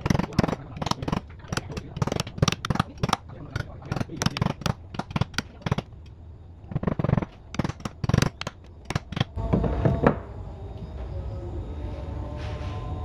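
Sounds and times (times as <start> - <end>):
hammer tapping metal: 0.0 - 6.1, 6.8 - 9.4
steady low hum: 0.0 - 13.0.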